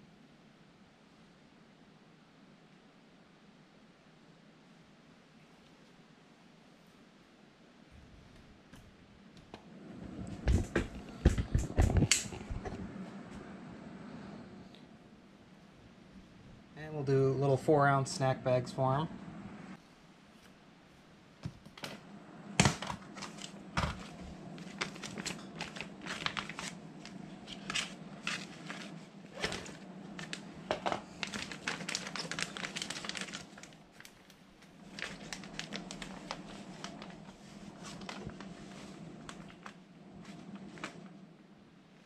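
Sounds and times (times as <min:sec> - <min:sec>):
plastic bag crinkling: 0:23.1 - 0:41.0.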